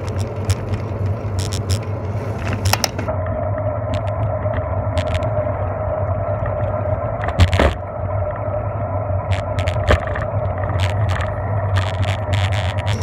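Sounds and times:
bicycle rolling on pavement: 0.0 - 3.1
rattling clicks: 2.4 - 3.1.

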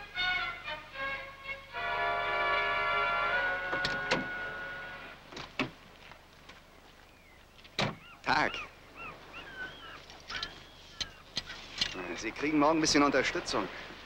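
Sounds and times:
film score music: 0.0 - 5.3
bird chirps: 7.1 - 11.9.

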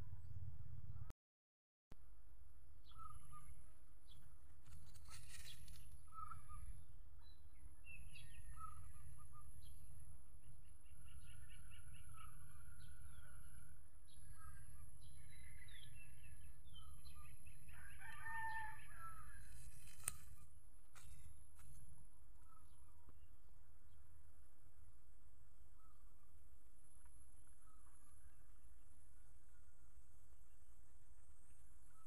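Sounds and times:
low rumble: 0.0 - 1.1
rooster crowing: 17.7 - 19.4.

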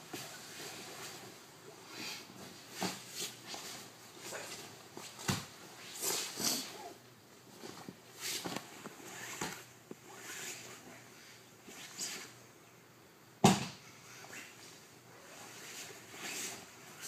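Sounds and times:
bodies shifting on a mat: 2.2 - 10.8
thump on a mat: 13.4 - 13.8.

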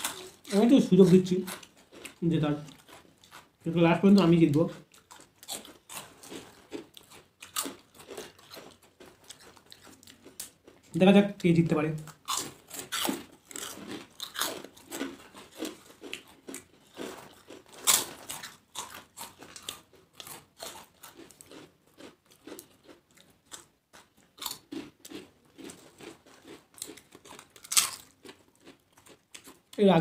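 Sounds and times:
people chewing crisp food: 0.0 - 30.0.

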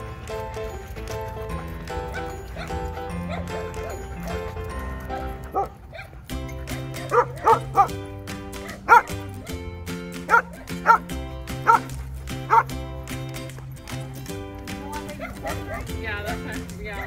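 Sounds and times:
background music: 0.0 - 17.0
dog barking: 2.1 - 4.5, 5.5 - 6.2, 7.0 - 8.0, 8.6 - 9.6, 10.3 - 11.9, 12.5 - 12.7, 15.2 - 16.5.

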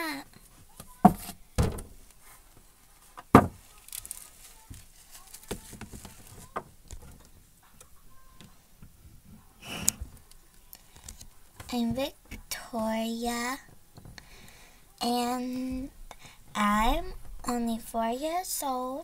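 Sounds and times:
sharp knocks on plastic: 1.0 - 2.0, 3.3 - 3.6.

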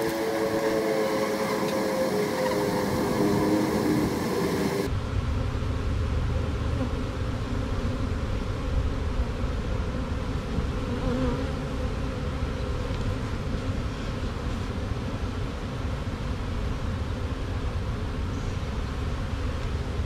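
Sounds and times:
bees buzzing: 0.0 - 4.9.

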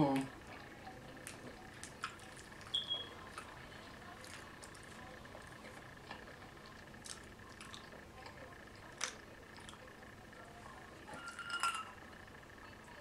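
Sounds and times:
wet chewing: 0.1 - 12.0
drinking glass clinking: 11.2 - 12.0.

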